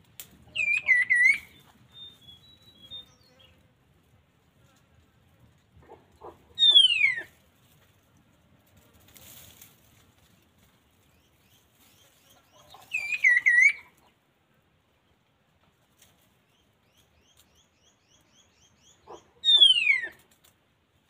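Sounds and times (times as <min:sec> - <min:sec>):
falling bird whistle: 0:00.5 - 0:03.4, 0:06.6 - 0:07.3, 0:12.9 - 0:13.8, 0:19.4 - 0:20.2
songbird warbling: 0:00.5 - 0:03.5, 0:06.6 - 0:07.3, 0:12.4 - 0:14.1, 0:18.3 - 0:20.2
bird chirps: 0:00.5 - 0:03.6, 0:06.6 - 0:07.3, 0:11.1 - 0:14.1, 0:16.5 - 0:20.2.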